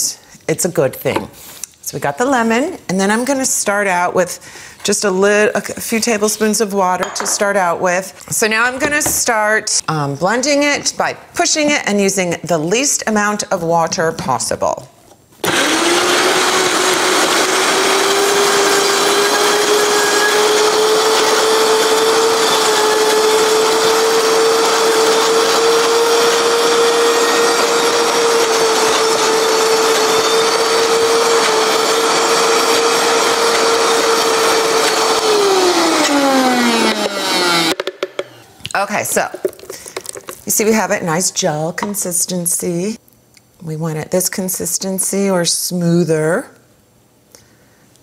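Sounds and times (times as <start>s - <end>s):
blender running: 15.4s - 38.5s.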